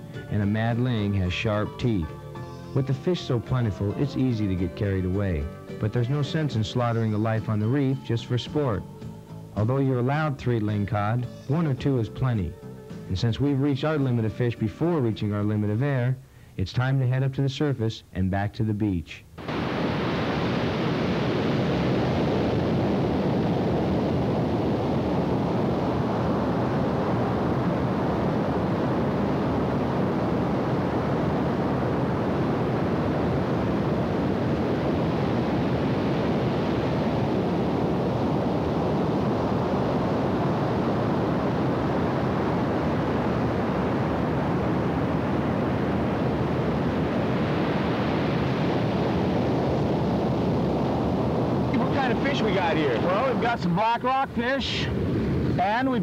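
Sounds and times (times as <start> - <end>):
ocean surf breaking: 19.4 - 56.0
wind on microphone: 19.4 - 56.0.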